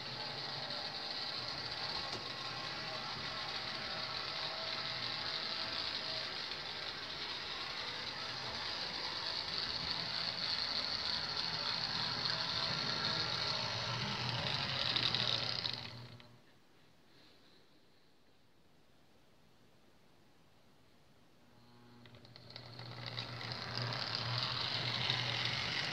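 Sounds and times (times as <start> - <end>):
model train motor whirring: 0.0 - 16.4, 21.6 - 25.9.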